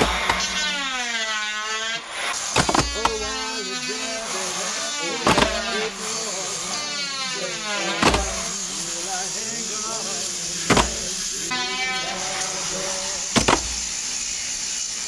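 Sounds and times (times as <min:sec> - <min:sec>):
electric disc sander whining: 0:00.0 - 0:15.0
sharp knocks: 0:02.6 - 0:03.3, 0:05.2 - 0:05.8, 0:08.0 - 0:08.4, 0:10.7 - 0:11.0, 0:13.3 - 0:13.9.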